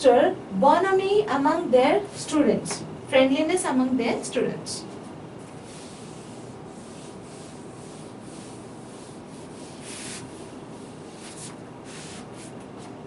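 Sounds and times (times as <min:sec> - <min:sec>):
eraser wiping whiteboard: 0:05.5 - 0:13.0.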